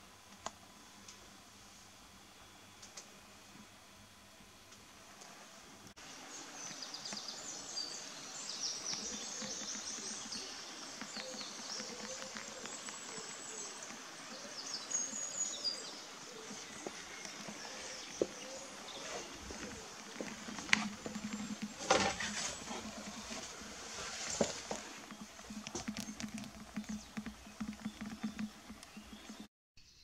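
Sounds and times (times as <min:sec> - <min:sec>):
songbirds chirping: 0:06.1 - 0:30.0.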